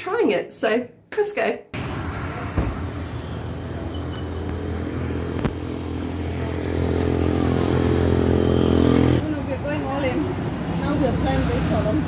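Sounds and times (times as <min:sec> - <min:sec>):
vehicle engine running: 0:01.8 - 0:10.4.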